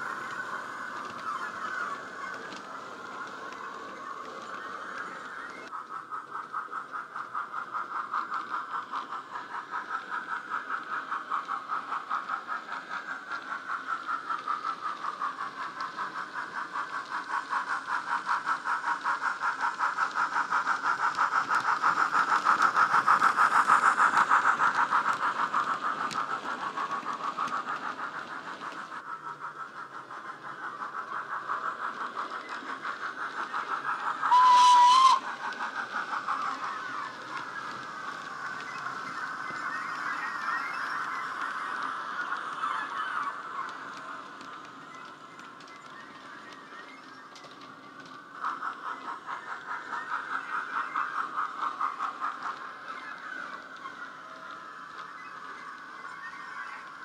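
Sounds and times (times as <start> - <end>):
steam locomotive exhaust chuffs: 0.0 - 57.0
train whistle blast: 34.3 - 35.2.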